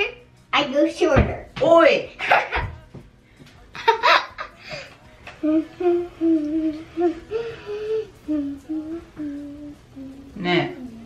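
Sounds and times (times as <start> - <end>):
girl laughing: 3.7 - 4.8
person humming a tune: 4.7 - 11.0.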